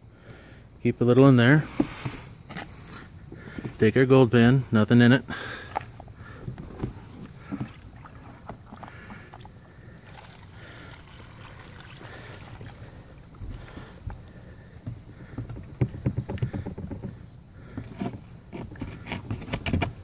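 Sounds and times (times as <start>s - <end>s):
muddy water splashing into pan: 10.0s - 14.0s.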